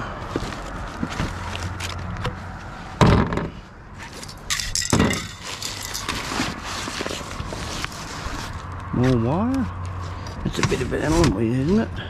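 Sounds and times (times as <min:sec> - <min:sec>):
clinking: 0:04.2 - 0:06.4
plastic bags crinkling: 0:04.3 - 0:08.6.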